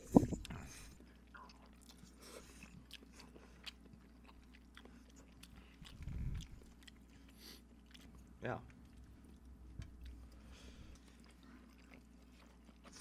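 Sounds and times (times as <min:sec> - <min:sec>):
low muffled sound: 0:00.0 - 0:01.0
soft wet chewing: 0:00.0 - 0:13.0.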